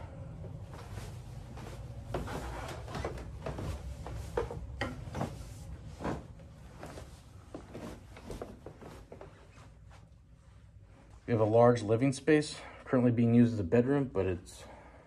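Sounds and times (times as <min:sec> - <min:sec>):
footsteps down stairs: 0:00.4 - 0:09.4.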